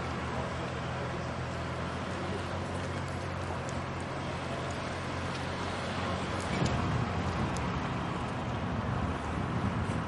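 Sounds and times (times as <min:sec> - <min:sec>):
wind buffeting microphone: 0:02.8 - 0:10.0.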